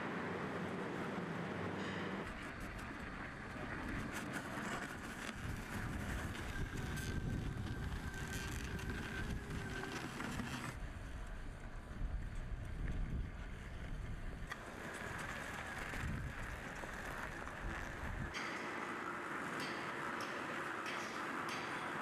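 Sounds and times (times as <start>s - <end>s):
faint motor whine: 0.0s - 22.0s
wind on microphone: 4.9s - 11.0s, 15.5s - 18.4s.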